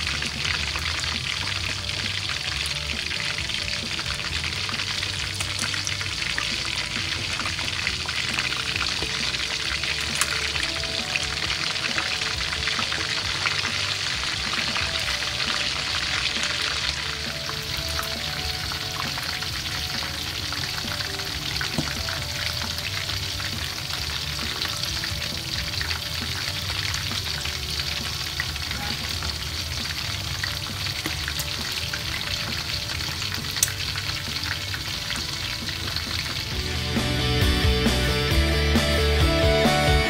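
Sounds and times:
oil popping: 0.0s - 36.6s
oil sizzling and crackling: 0.0s - 40.0s.

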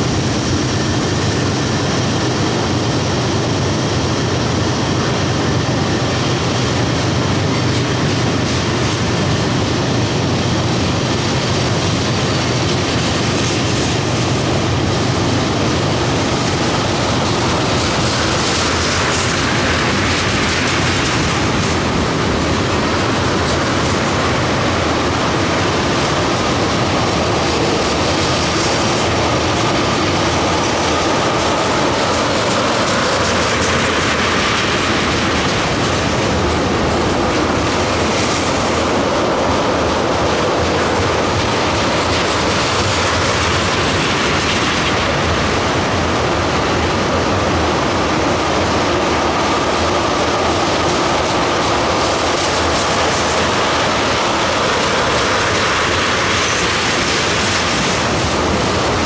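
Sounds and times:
train wheels rumbling on rails: 0.0s - 59.0s
wheels clicking over rail joints: 10.9s - 46.0s.

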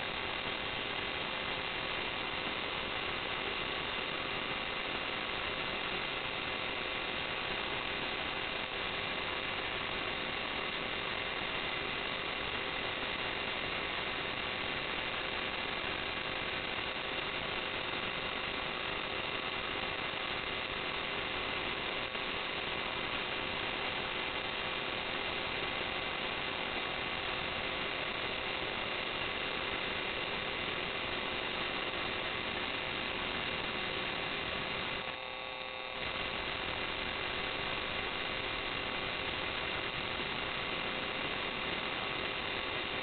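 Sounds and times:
faint constant whines: 0.0s - 43.0s
steady electronic hiss: 0.0s - 43.0s.

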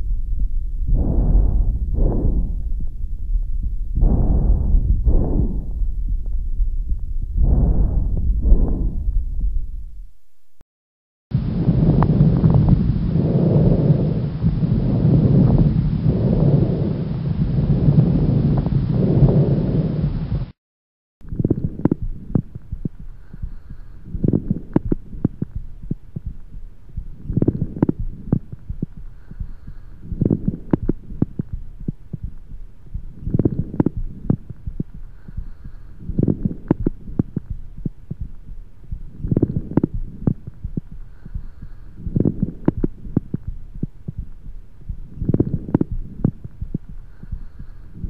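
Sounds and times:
harsh breath sound: 0.0s - 10.2s, 22.9s - 24.9s, 28.6s - 30.9s, 34.6s - 37.6s, 38.9s - 43.2s, 46.7s - 48.0s
lung crackles: 0.0s - 10.6s.

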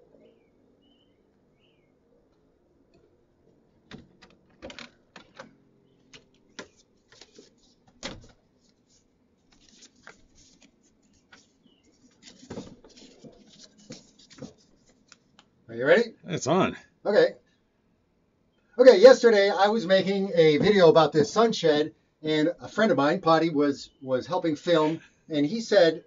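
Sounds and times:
bird chirping: 0.0s - 2.2s, 11.0s - 12.2s
clicks and knocks in wooden shed: 3.7s - 8.5s.

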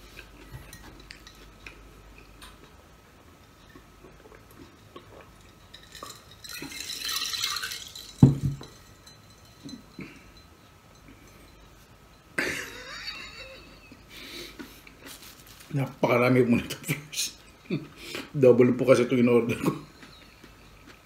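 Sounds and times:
glass stein set down on table: 8.2s - 8.7s
breathy hiss: 14.0s - 15.5s, 17.9s - 18.4s
paper rustle: 15.1s - 15.9s.

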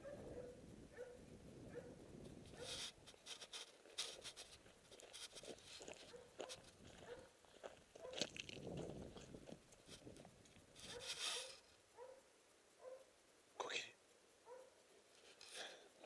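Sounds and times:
clicks and rustles: 2.2s - 11.9s, 15.1s - 15.9s.

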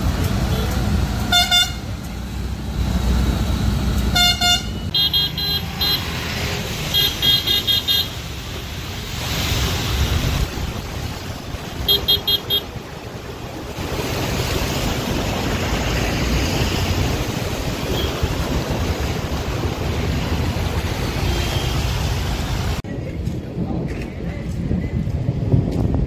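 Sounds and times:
vehicles sloshing through floodwater: 0.0s - 22.9s
car horn toots: 1.3s - 1.9s, 4.1s - 6.1s.

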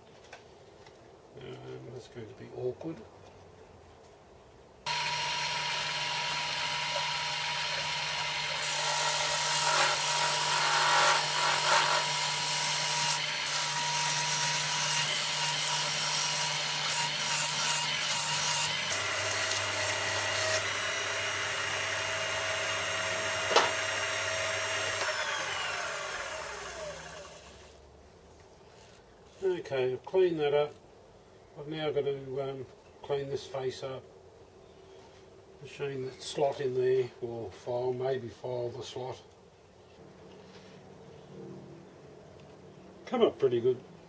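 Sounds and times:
lathe winding down: 4.9s - 12.0s, 20.4s - 27.7s
lathe motor hum: 4.9s - 14.0s, 14.6s - 27.6s
metal chips being cut: 4.9s - 22.0s.

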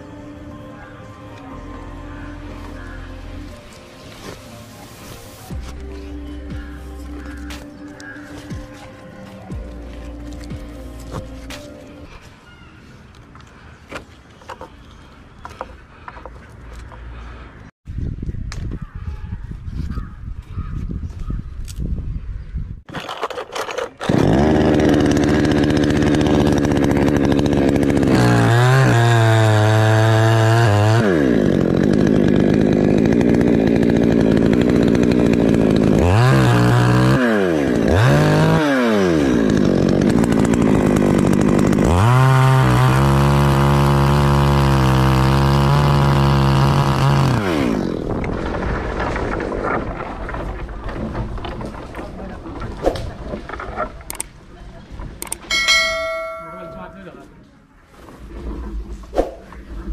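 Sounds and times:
chainsaw cutting wood: 22.9s - 52.1s.

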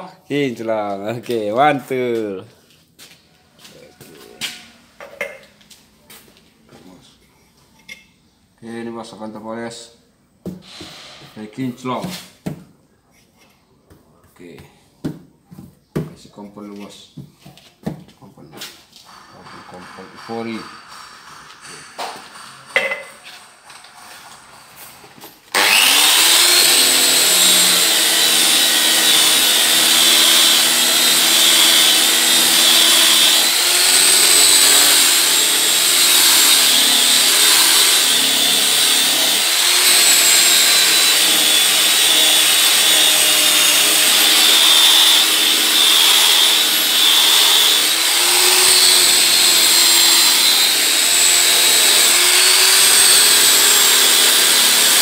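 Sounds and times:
electric car polisher whining: 19.1s - 24.6s, 25.5s - 55.0s.

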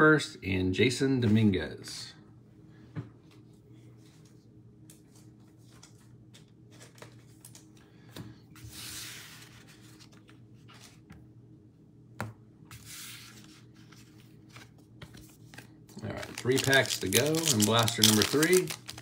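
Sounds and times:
wrapper tearing and crinkling: 16.0s - 19.0s
cards clicking: 16.2s - 19.0s.

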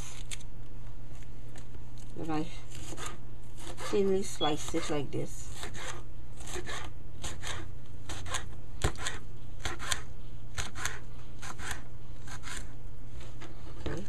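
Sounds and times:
steady low hum: 0.0s - 14.0s
knife cutting on board: 5.5s - 12.7s.

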